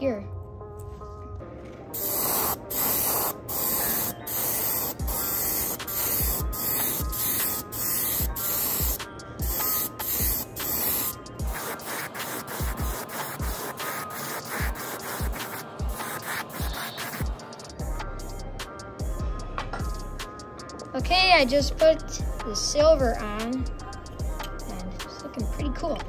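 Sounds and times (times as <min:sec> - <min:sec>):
airbrush spraying hiss: 0:02.0 - 0:17.7.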